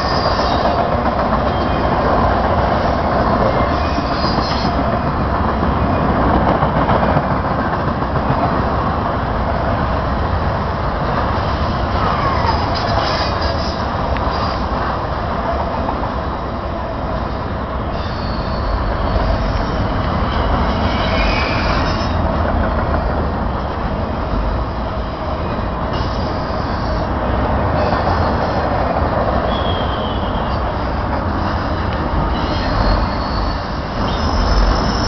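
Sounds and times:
high wheel squeal: 0.0s - 0.8s, 3.4s - 4.8s, 11.9s - 14.7s, 17.9s - 22.3s, 25.9s - 27.2s, 27.8s - 28.8s, 29.4s - 35.0s
train wheels rumbling on rail: 0.0s - 35.0s.

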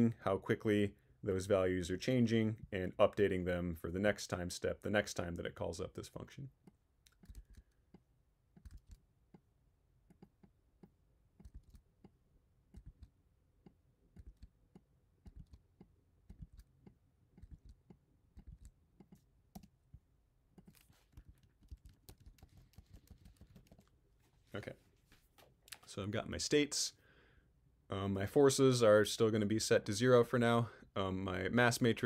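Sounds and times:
faint computer keyboard typing: 6.6s - 19.8s, 20.6s - 24.0s.

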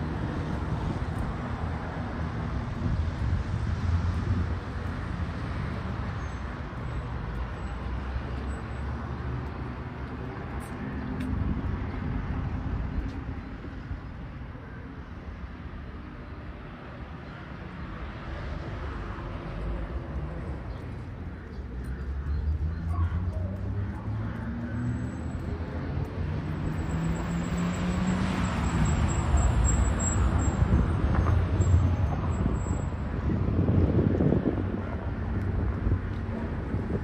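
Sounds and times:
traffic passing: 0.0s - 37.0s.

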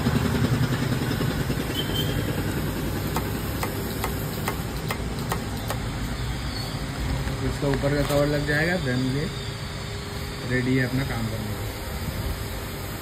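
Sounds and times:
engine idling: 0.0s - 7.4s.

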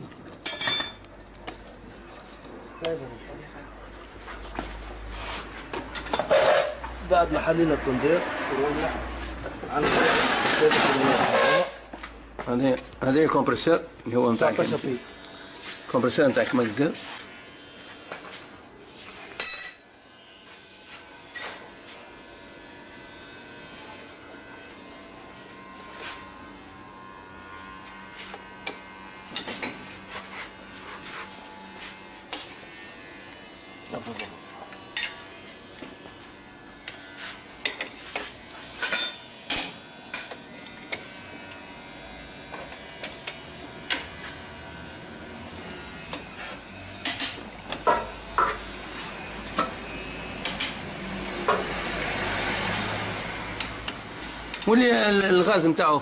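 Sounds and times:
metal tools clinking: 0.4s - 1.3s, 19.4s - 19.9s, 38.6s - 40.4s.

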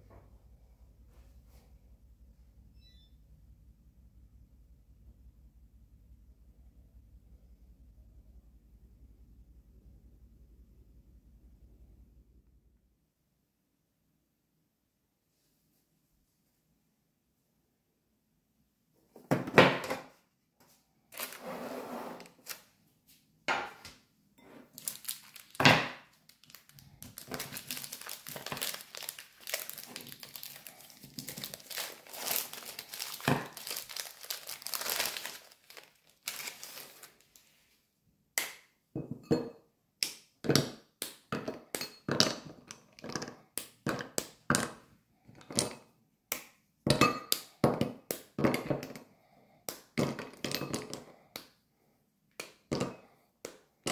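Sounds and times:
wrapping material crinkling: 21.1s - 22.7s, 24.6s - 37.7s.

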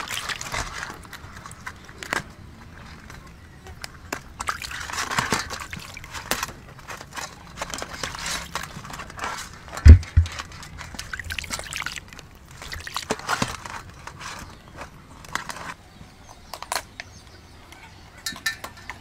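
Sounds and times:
water splashing in metal basin: 0.0s - 0.6s, 4.4s - 6.4s, 9.8s - 13.3s.

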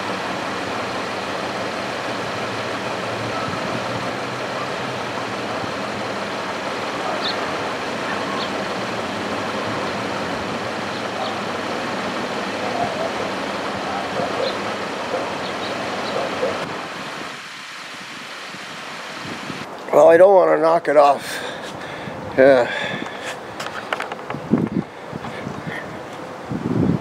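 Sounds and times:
truck engine idling: 0.0s - 17.0s.

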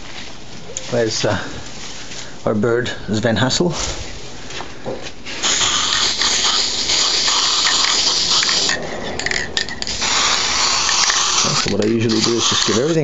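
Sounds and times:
spray can hissing: 5.3s - 13.0s.

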